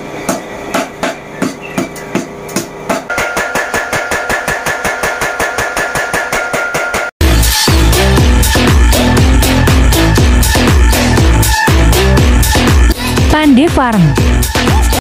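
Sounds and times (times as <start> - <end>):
hammer striking steel on anvil: 0.3 - 7.1
power hammer striking fast: 0.3 - 7.1.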